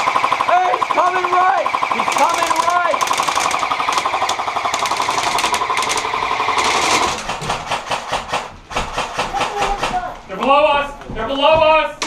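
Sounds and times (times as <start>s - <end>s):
airsoft rifles firing: 0.0s - 10.0s.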